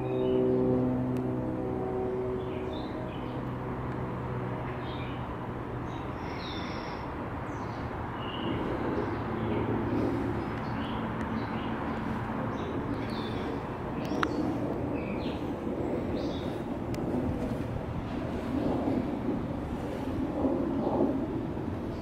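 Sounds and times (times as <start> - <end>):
music drone: 0.0 - 6.2
low background rumble: 0.0 - 22.0.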